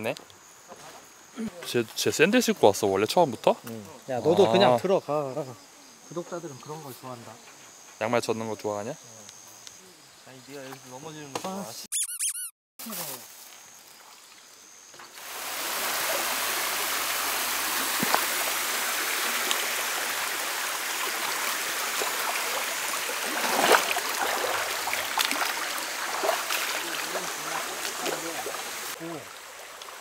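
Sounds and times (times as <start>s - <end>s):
stream burbling over rocks: 15.2s - 30.0s
feet splashing through water: 21.8s - 28.9s.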